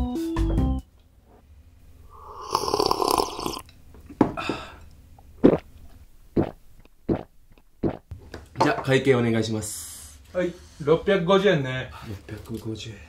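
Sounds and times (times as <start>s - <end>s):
drink gulps: 2.1s - 3.7s, 5.4s - 5.8s, 6.4s - 8.0s
noodles slurped loudly: 2.2s - 3.6s.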